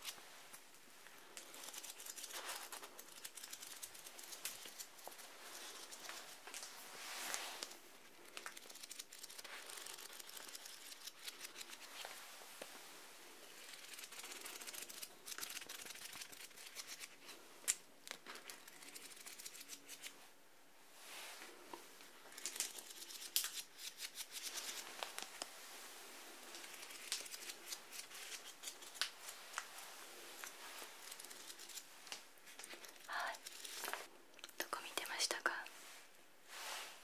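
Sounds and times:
paper rustling and crinkling: 0:01.2 - 0:12.8, 0:22.0 - 0:34.1.

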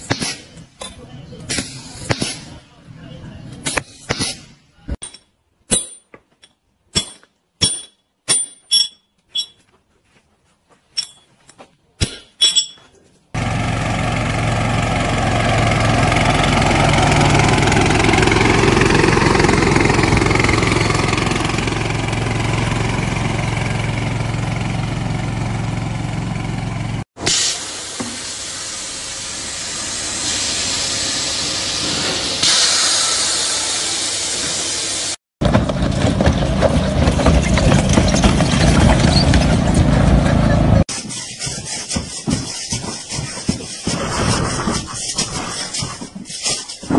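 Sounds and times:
hammer striking steel chisel: 0:05.0 - 0:09.6, 0:12.0 - 0:12.9
mower engine running: 0:13.4 - 0:27.0, 0:33.1 - 0:40.9
machinery hiss: 0:27.2 - 0:35.2.

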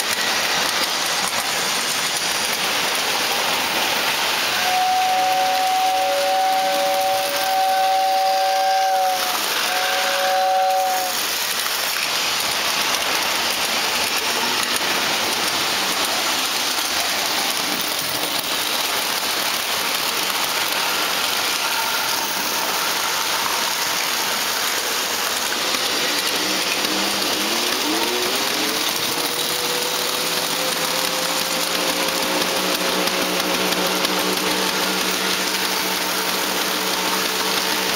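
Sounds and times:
model trains running: 0:00.0 - 0:37.9
model train whistle blasts: 0:04.5 - 0:11.4, 0:20.7 - 0:37.9.

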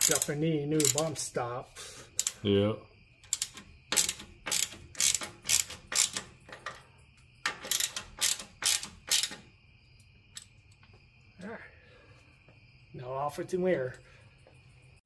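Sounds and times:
ratchet wrench clicking: 0:00.0 - 0:01.3, 0:02.1 - 0:02.4, 0:03.2 - 0:06.8, 0:07.4 - 0:09.5.

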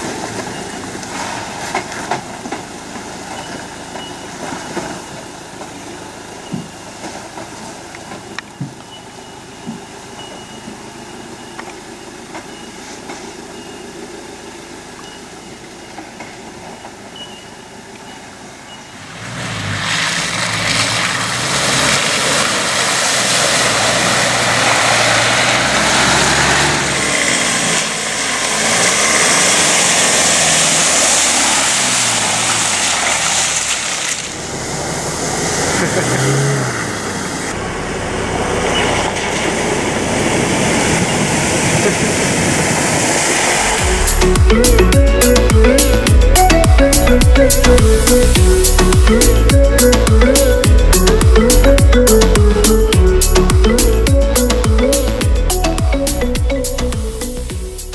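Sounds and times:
off-road vehicle engines revving: 0:00.0 - 0:57.9.

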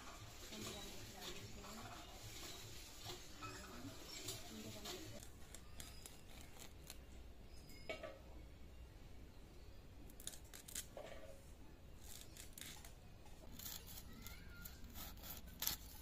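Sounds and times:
fish scraping on blade: 0:12.1 - 0:16.0.

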